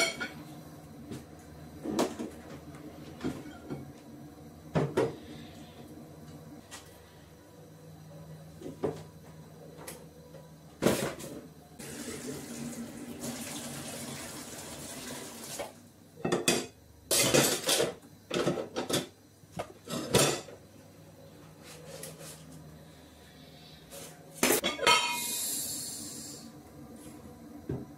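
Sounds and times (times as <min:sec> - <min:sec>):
dishes and pots clattering: 0:00.0 - 0:00.4, 0:03.2 - 0:03.9, 0:16.2 - 0:19.2, 0:19.8 - 0:20.6, 0:24.4 - 0:25.3.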